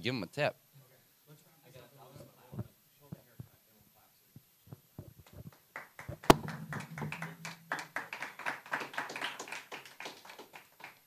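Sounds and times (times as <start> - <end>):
people clapping: 5.2 - 11.0.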